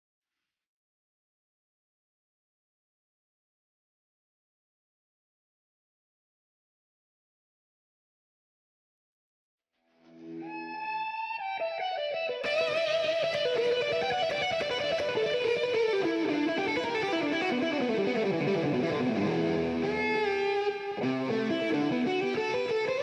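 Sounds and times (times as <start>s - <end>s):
guitar-led background music: 9.9s - 23.0s.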